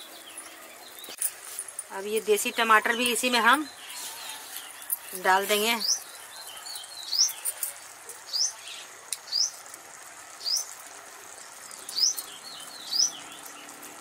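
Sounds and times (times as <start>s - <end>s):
bird chirping: 2.4s - 9.6s, 10.4s - 13.9s.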